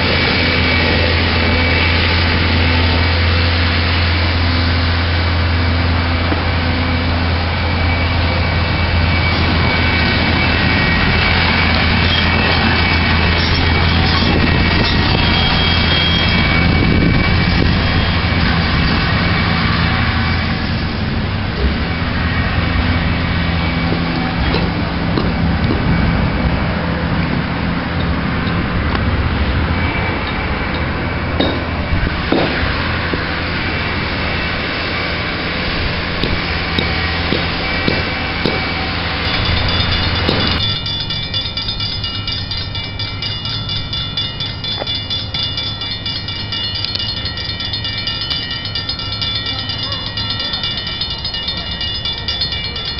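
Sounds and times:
engine droning: 0.0s - 52.9s
thin steady high tones: 6.9s - 21.1s, 36.6s - 52.9s.

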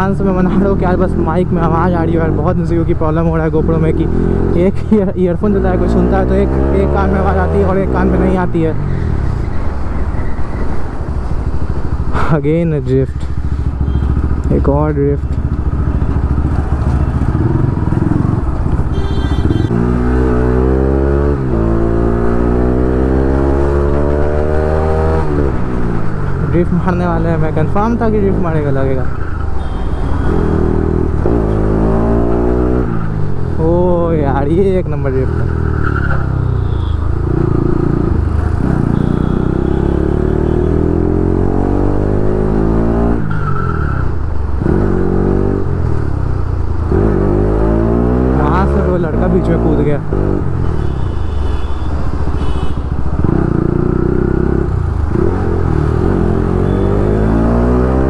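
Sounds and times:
motorcycle engine accelerating: 13.5s - 26.6s, 37.2s - 43.3s, 46.8s - 50.6s, 53.0s - 58.0s.

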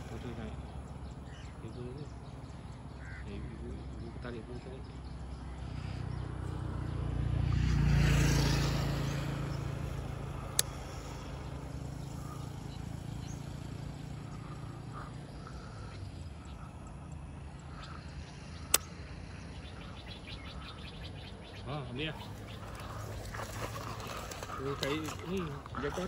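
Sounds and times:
vehicle engine passing by: 3.5s - 26.0s
sharp clicks: 10.5s - 10.8s, 18.6s - 19.0s.

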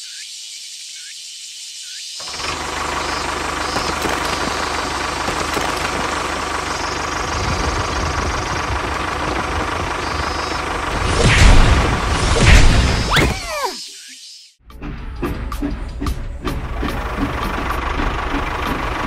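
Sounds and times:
tractor engine chugging: 2.2s - 12.2s, 15.3s - 19.0s.

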